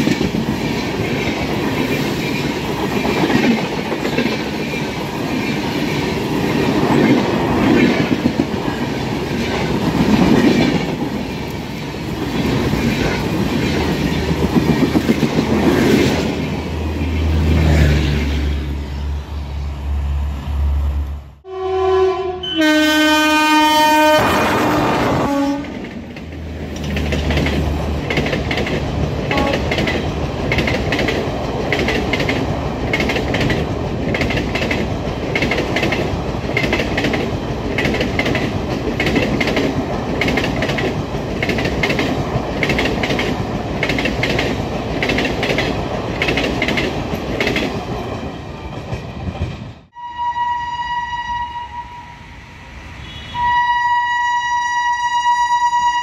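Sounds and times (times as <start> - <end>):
train coaches rumbling: 0.0 - 50.0
train horn: 21.4 - 25.8, 29.3 - 29.8, 49.9 - 52.3, 52.9 - 56.0
train wheels clattering over rail joints: 25.7 - 49.8.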